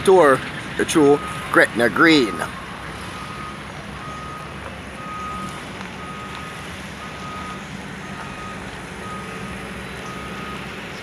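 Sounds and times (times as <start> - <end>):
engine humming: 0.0 - 11.0
reversing alarm beeping: 1.0 - 10.7.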